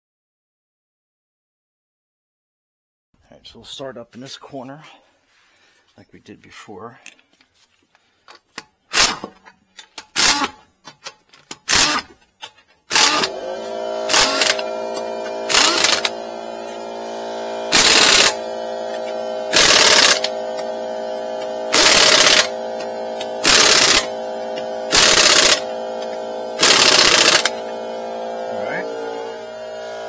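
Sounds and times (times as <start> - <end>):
air impact wrench hammering: 8.5 - 30.0
air compressor motor hum: 10.2 - 10.6, 11.7 - 12.1, 12.9 - 30.0.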